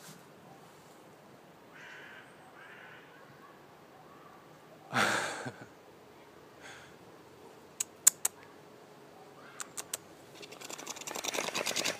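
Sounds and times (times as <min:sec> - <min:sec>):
crow cawing: 0:01.7 - 0:03.3, 0:09.4 - 0:09.7
sharp clicks: 0:07.8 - 0:08.4, 0:09.6 - 0:11.9
rapid scratchy clatter: 0:10.4 - 0:11.9.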